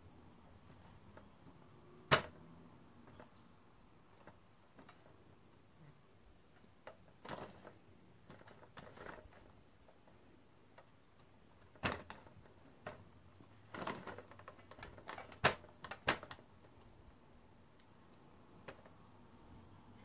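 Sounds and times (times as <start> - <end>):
plastic toy clicks and knocks: 13.6 - 16.7.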